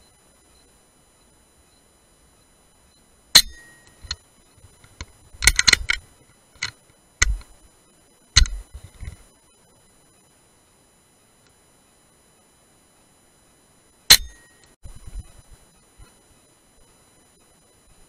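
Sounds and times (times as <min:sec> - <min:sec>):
air rifle metallic clicks: 0:03.4 - 0:04.2, 0:04.8 - 0:07.5, 0:08.4 - 0:09.2, 0:14.1 - 0:14.8.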